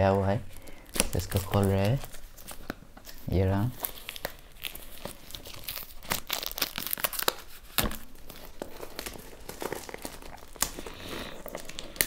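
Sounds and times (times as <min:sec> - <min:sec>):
plastic wrap crinkling: 0:00.0 - 0:12.0.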